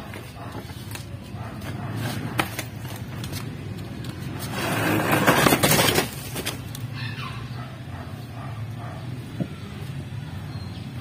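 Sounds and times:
crate scraping along ground: 4.1s - 6.7s.

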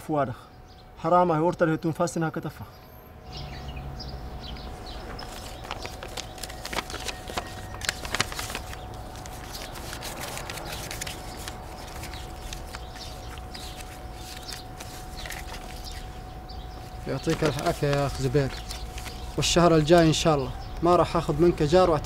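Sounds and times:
banknotes rustling: 4.6s - 22.0s.

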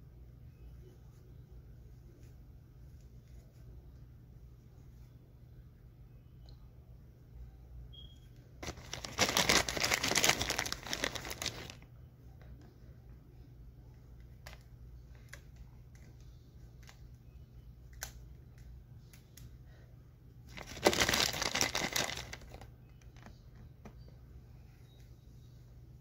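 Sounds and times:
loud crinkling rustle: 8.6s - 11.8s, 20.5s - 23.3s.

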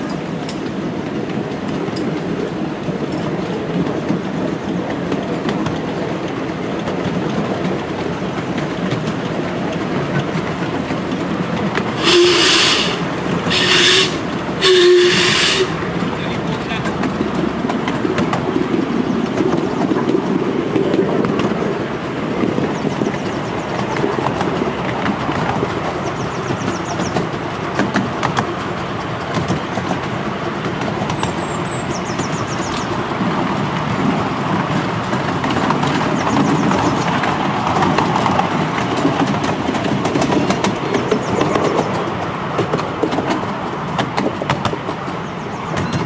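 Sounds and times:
train wheels rumbling on rails: 0.0s - 46.0s
birds twittering: 25.9s - 27.3s, 31.2s - 33.0s, 36.0s - 37.2s, 40.7s - 42.0s.

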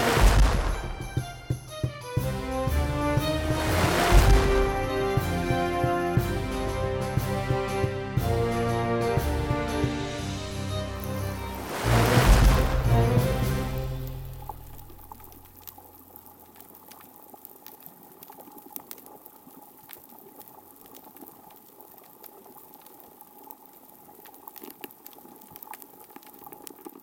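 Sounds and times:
music: 0.0s - 15.3s.

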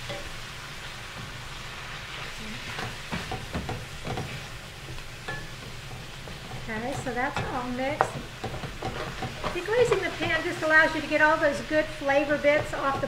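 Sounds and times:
meat and vegetables sizzling in pan: 0.0s - 13.0s
wooden spoon scraping pan: 5.8s - 10.5s.

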